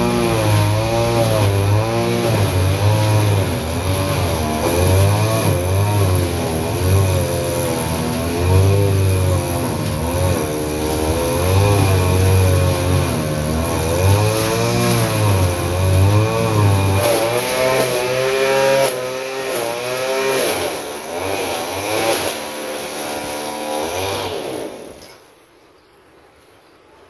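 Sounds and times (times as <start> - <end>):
brush cutter engine revving: 0.0 - 25.2.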